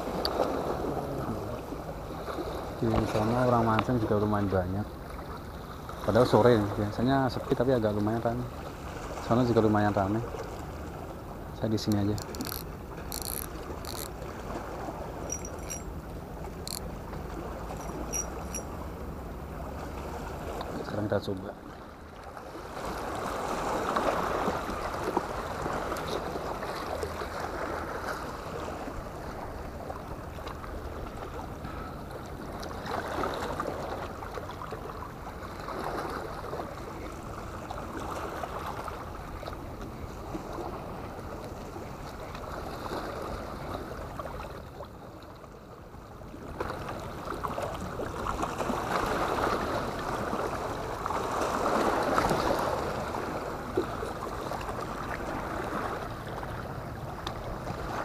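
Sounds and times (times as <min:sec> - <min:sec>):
seawater washing against rocks: 0:11.5 - 0:18.8, 0:46.6 - 0:58.0.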